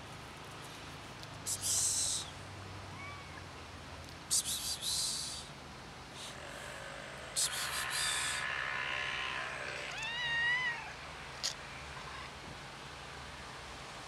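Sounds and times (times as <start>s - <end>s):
cat meowing: 9.3s - 10.9s.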